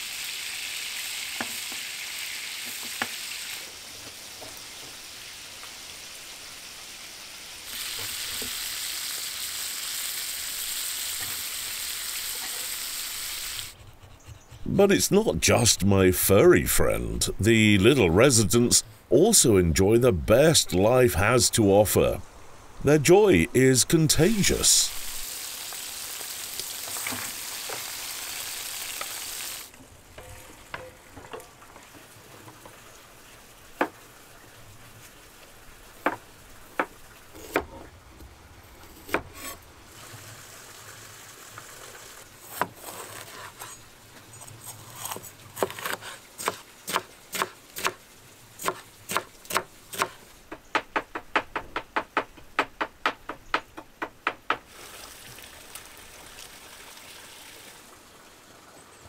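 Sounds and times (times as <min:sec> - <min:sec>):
food sizzling in a pan: 0:00.0 - 0:13.7, 0:24.9 - 0:29.7.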